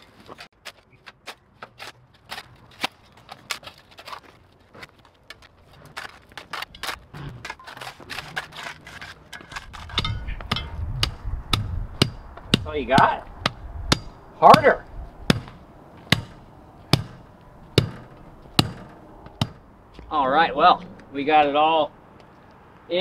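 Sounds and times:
gritty concrete scrapes: 0.0s - 10.9s.

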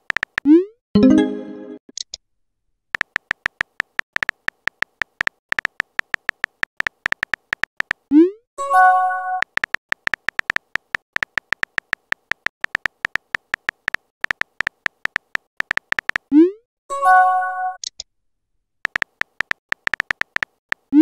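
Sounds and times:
phone keyboard typing clicks: 0.0s - 0.5s, 3.0s - 8.1s, 9.4s - 16.3s, 18.8s - 21.0s.

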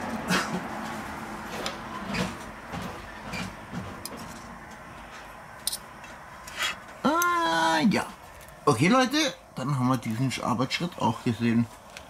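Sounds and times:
steady background hiss: 4.4s - 12.0s.

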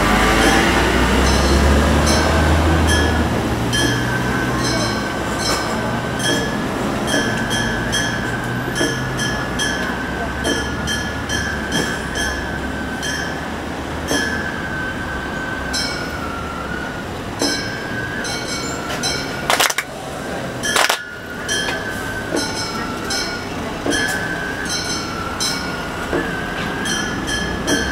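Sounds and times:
high bamboo flute: 0.0s - 27.9s
loud hand claps: 19.5s - 19.9s, 20.7s - 21.1s.

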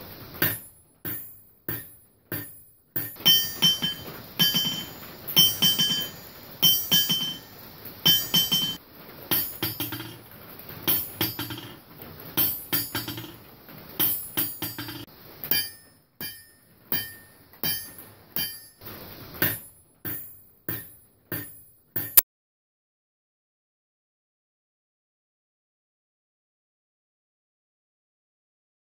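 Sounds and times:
hammer striking metal anvil: 0.4s - 10.2s, 10.9s - 11.8s, 12.4s - 13.4s, 14.0s - 22.2s.

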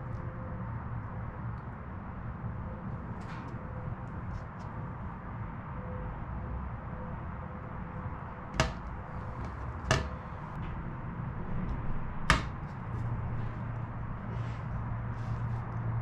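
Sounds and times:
metal knocks with ring: 8.6s - 8.9s, 9.5s - 10.3s.

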